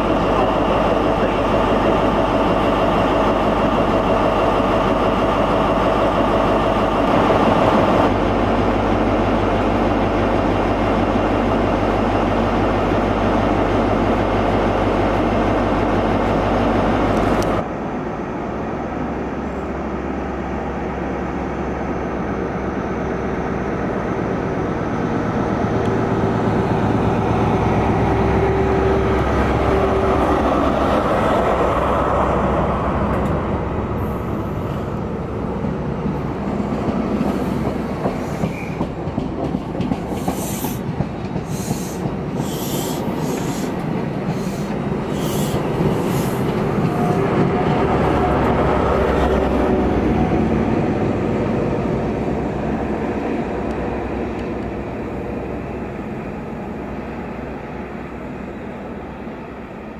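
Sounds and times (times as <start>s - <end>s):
diesel train engine running: 0.0s - 59.9s.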